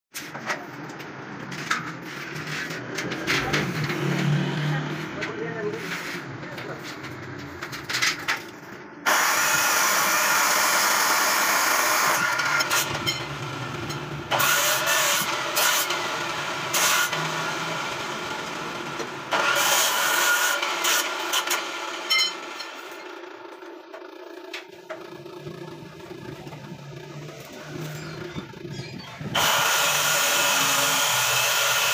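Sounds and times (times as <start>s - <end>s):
chop saw grinding steel: 9.1s - 23.4s, 26.5s - 31.9s.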